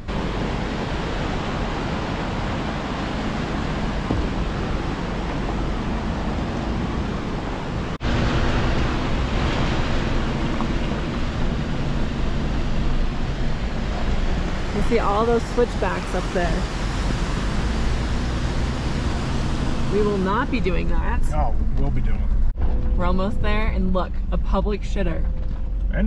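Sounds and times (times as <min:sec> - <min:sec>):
whitewater creek rushing: 0:00.0 - 0:20.4
van driving on gravel road: 0:00.0 - 0:23.7.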